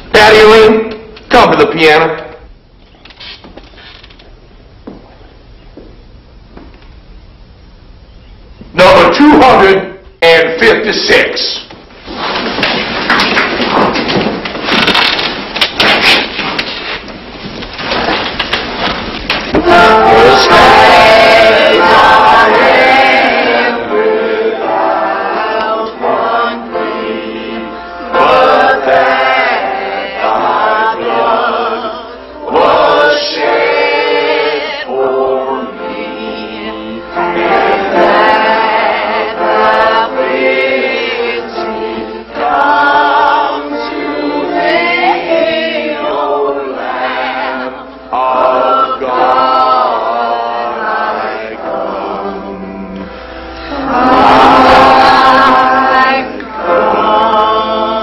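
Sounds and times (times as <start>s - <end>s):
congregation singing a hymn: 19.3s - 58.0s.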